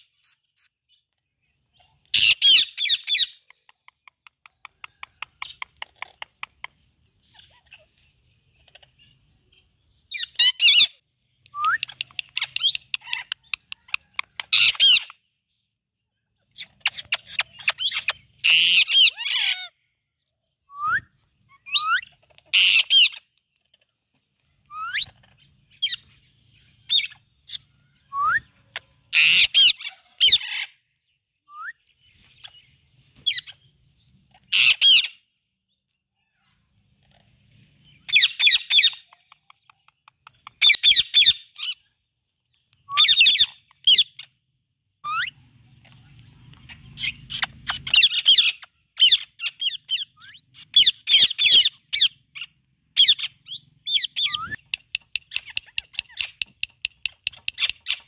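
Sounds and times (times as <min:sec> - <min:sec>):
parrots squawking: 0:02.0 - 0:03.4, 0:16.7 - 0:19.8, 0:21.7 - 0:23.2, 0:29.1 - 0:30.8, 0:34.3 - 0:35.2, 0:43.0 - 0:44.3, 0:46.7 - 0:54.6
whistled chirps: 0:11.4 - 0:12.0, 0:20.7 - 0:22.0, 0:27.5 - 0:28.7, 0:31.4 - 0:31.9, 0:42.8 - 0:43.4.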